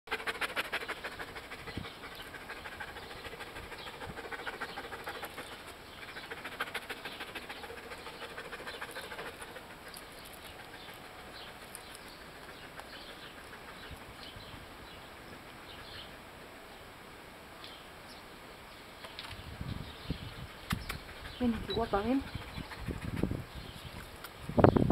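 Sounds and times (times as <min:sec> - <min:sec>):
dog panting: 0:00.1 - 0:14.4, 0:20.3 - 0:23.6.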